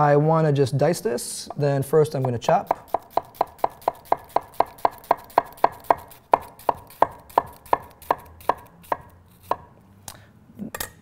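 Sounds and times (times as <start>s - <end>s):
knife chopping onion on wooden board: 1.5s - 9.7s.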